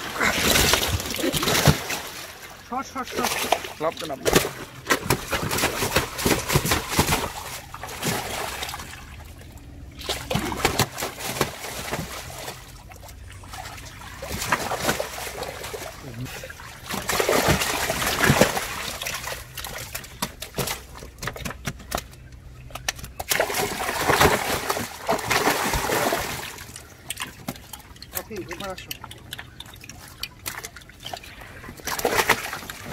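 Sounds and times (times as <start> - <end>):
fish slapping: 0.0 - 32.9
water splashing and sloshing: 0.0 - 32.9.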